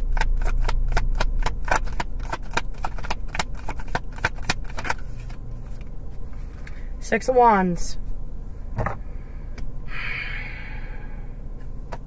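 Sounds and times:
cards being shuffled: 0.0s - 6.7s.

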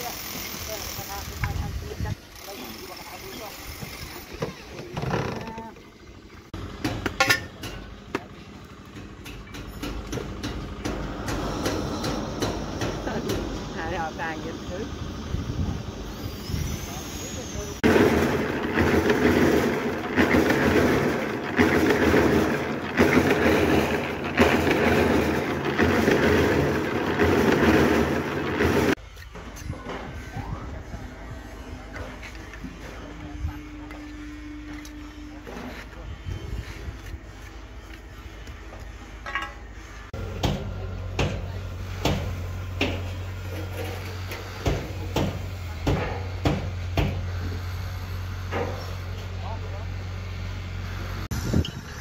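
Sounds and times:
concrete mixer churning: 10.0s - 29.0s.

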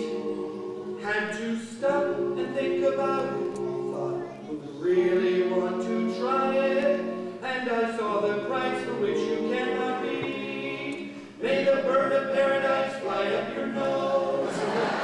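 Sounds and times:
vocal quartet singing a cappella: 0.0s - 15.0s.

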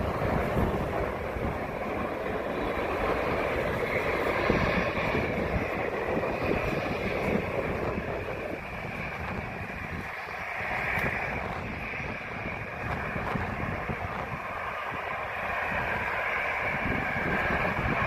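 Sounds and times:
jet engines rushing and whining: 0.0s - 18.0s
wind buffeting microphone: 0.0s - 18.0s.

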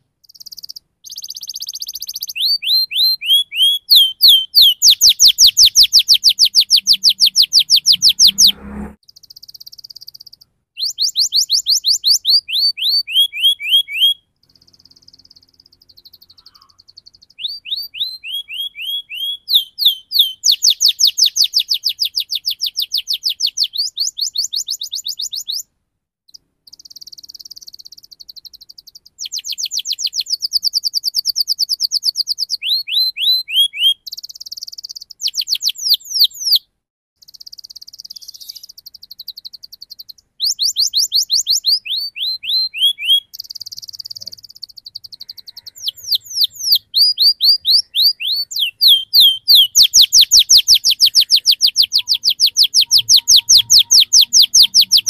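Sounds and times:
canary singing: 0.0s - 25.7s, 26.3s - 55.0s.

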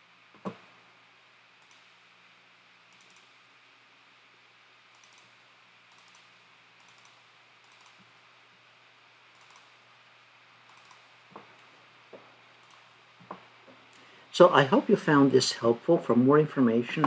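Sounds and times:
low steady hum: 0.0s - 17.0s
computer mouse double-clicks: 2.9s - 3.3s, 4.9s - 5.3s, 5.9s - 8.0s, 9.4s - 9.7s, 10.7s - 11.0s.

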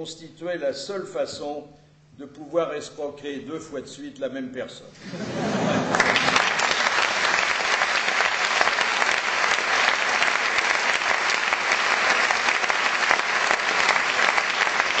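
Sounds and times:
audience applauding: 5.4s - 15.0s.

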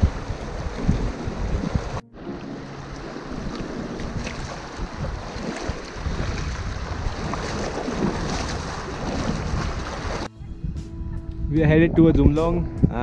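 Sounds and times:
feet splashing in water: 0.0s - 10.3s
river rushing over stones: 0.0s - 10.3s.

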